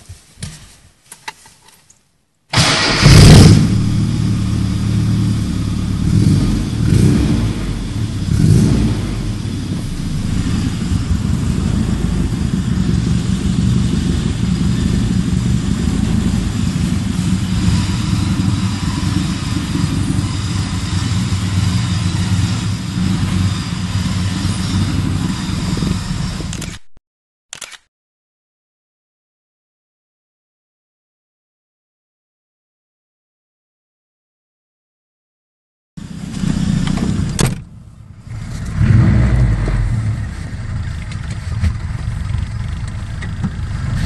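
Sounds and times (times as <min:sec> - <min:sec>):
car engine starting and idling: 0:02.5 - 0:26.9, 0:36.0 - 0:44.0.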